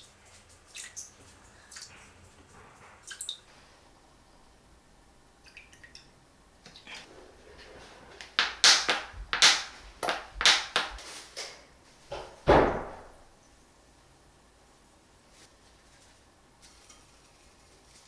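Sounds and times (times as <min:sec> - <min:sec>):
heavier knock: 0:12.1 - 0:13.2.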